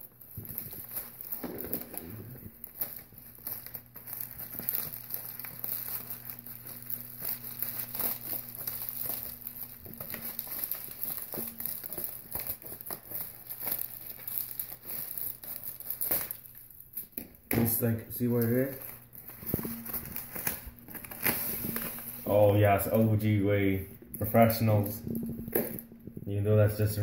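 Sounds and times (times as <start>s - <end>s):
plastic mailer crinkling: 0.0s - 27.0s
scissors cutting plastic: 0.1s - 17.3s.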